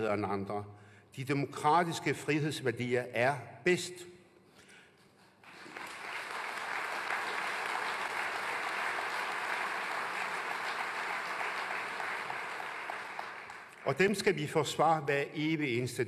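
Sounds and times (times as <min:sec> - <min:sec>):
audience applauding: 0:05.4 - 0:14.0.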